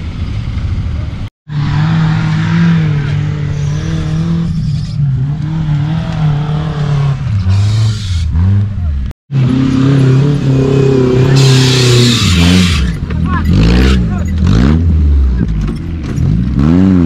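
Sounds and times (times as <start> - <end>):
engine revving hard: 9.3 - 15.1.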